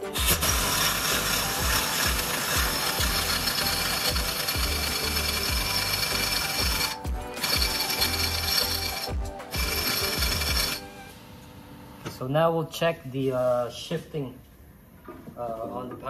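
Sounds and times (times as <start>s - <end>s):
pneumatic impact wrench hammering: 0.0s - 10.9s.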